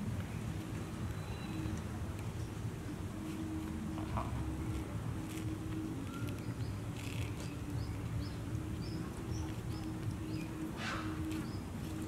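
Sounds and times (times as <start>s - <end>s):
steady low hum: 0.0s - 12.0s
faint high chirps: 1.1s - 1.8s.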